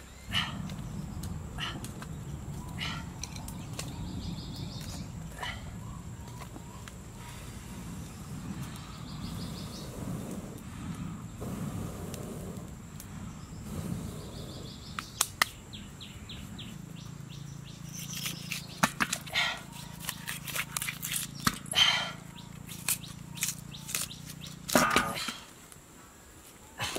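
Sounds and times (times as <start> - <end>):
low rumble: 0.0 - 18.0
small birds chirping: 0.0 - 26.9
knife cutting bamboo shoot: 17.9 - 21.7, 22.6 - 25.4.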